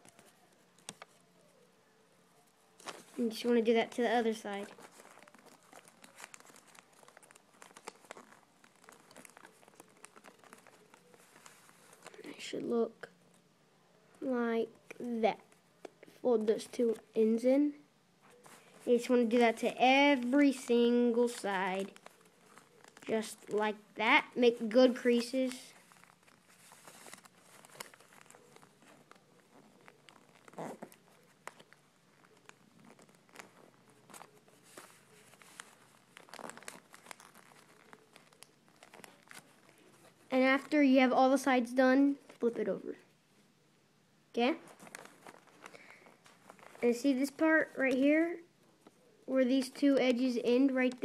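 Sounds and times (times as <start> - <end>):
paper crinkling being folded: 0.0 - 1.7, 2.4 - 13.5, 18.2 - 41.0, 44.6 - 48.0.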